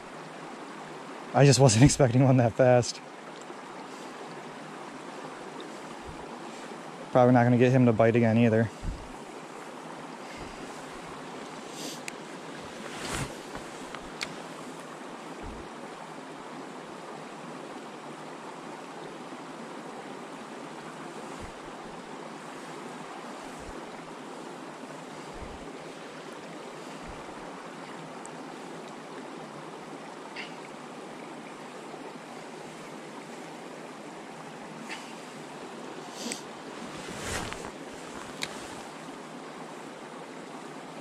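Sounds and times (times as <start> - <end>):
creek water rushing: 0.0 - 41.0
soft low thumps: 8.8 - 9.2, 15.4 - 15.6.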